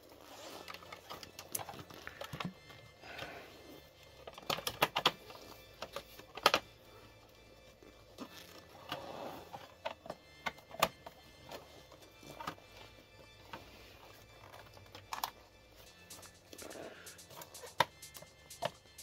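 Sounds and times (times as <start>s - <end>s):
plastic and metal parts clicking: 0.5s - 3.3s, 4.0s - 6.8s, 8.2s - 15.5s.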